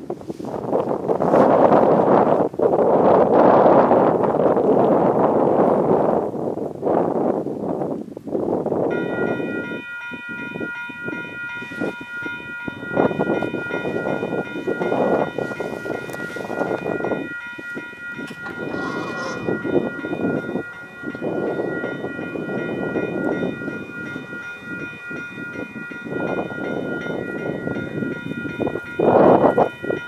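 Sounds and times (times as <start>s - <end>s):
wind buffeting microphone: 0.0s - 30.0s
level crossing warning bell: 8.8s - 30.0s.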